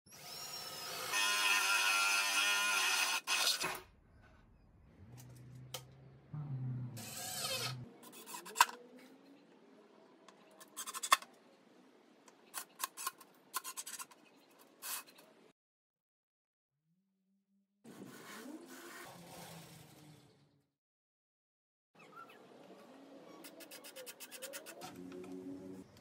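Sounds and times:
cordless drill boring through wood: 0:00.1 - 0:03.7.

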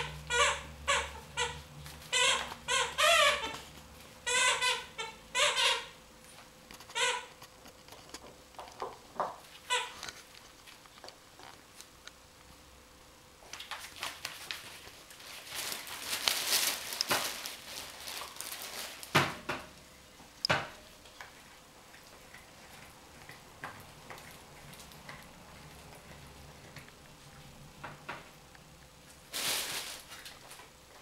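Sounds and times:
puppies scuffling and playing: 0:00.0 - 0:04.8, 0:13.4 - 0:19.3, 0:21.0 - 0:28.3.

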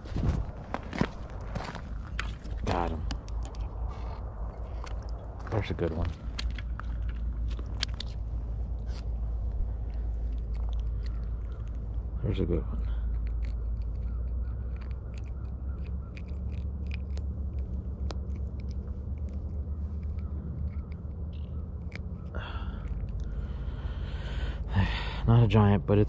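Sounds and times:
small clicks and rustles: 0:00.0 - 0:12.0
steady low rumble: 0:00.0 - 0:26.0.

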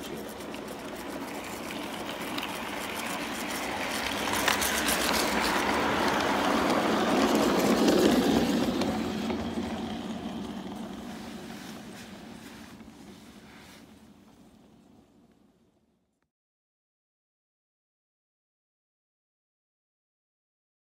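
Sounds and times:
model locomotive running: 0:00.0 - 0:15.7.

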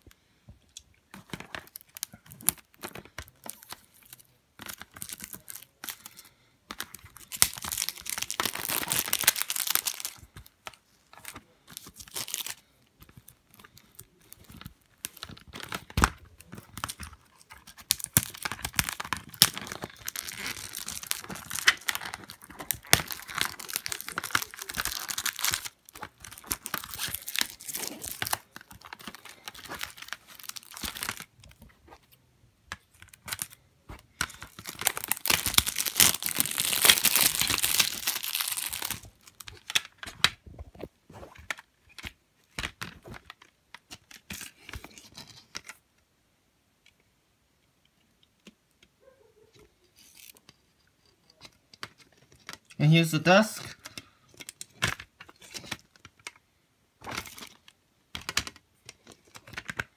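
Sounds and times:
plastic wrapping tearing and crinkling: 0:01.2 - 0:32.1, 0:32.7 - 0:40.5.

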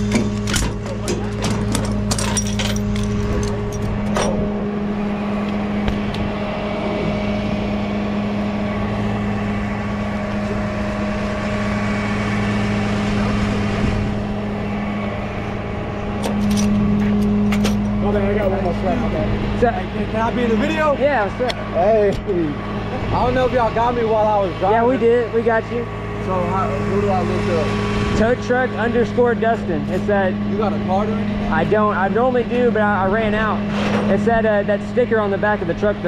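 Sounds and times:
strap ratchet and hooks clinking: 0:00.0 - 0:04.4
truck engine idling: 0:00.0 - 0:36.0.

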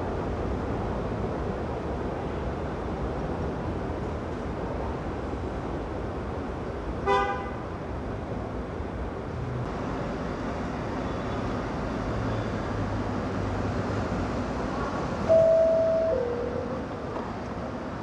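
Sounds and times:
low rumble of train: 0:00.0 - 0:18.0
subway train horn toot: 0:07.0 - 0:07.7, 0:15.3 - 0:16.8.

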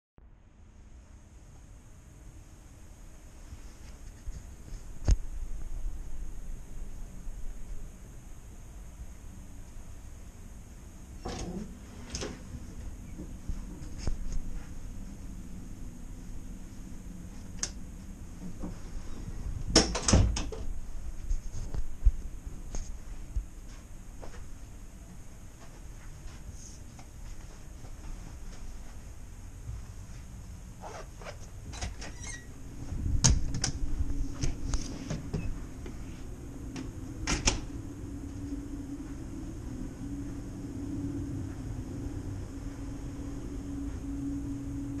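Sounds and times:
low hum of ship: 0:00.2 - 0:45.0
low hum of ferry: 0:23.3 - 0:45.0.

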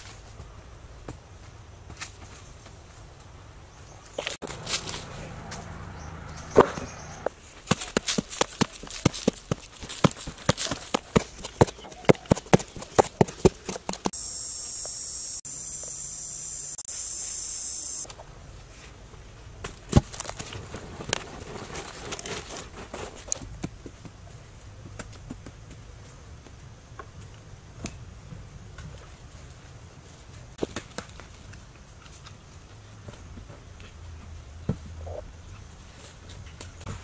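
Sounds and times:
scraping in dirt: 0:04.1 - 0:14.2, 0:19.7 - 0:23.5
insects buzzing high-pitched: 0:14.1 - 0:18.1.

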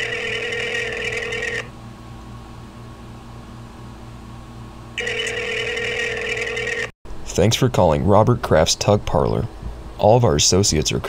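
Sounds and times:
telephone ringing: 0:00.0 - 0:01.7, 0:05.0 - 0:06.9.

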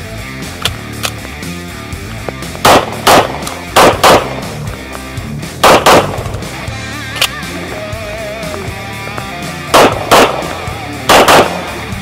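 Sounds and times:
pistol shots: 0:02.6 - 0:04.7, 0:05.6 - 0:06.5, 0:09.6 - 0:12.0.

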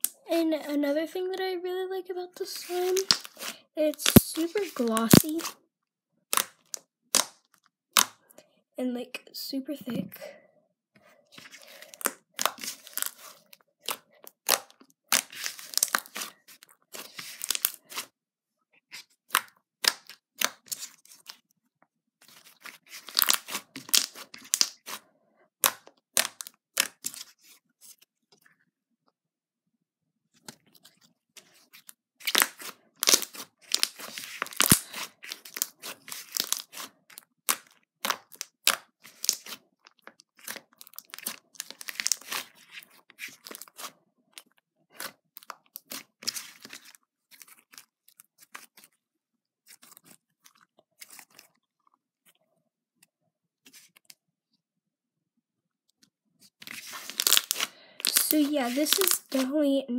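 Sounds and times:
sticky slime crackles: 0:02.5 - 0:05.6, 0:11.4 - 0:18.1, 0:22.2 - 0:25.0, 0:30.5 - 0:49.0, 0:56.5 - 0:59.8.

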